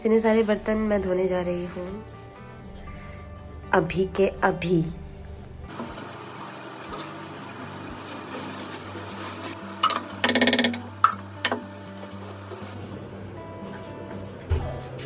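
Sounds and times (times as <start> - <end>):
metal pots clanking: 9.7 - 12.6.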